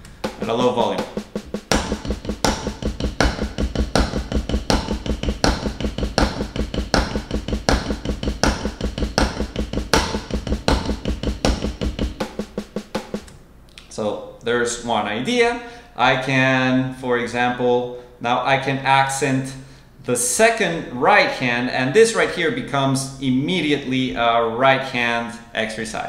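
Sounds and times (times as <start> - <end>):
snare drum played with sticks: 0.0 - 13.3.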